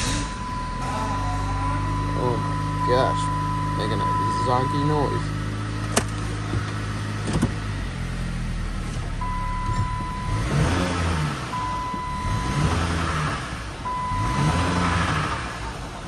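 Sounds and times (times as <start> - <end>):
electronic beep pulses: 0.0 - 5.3
car engine droning: 0.0 - 16.0.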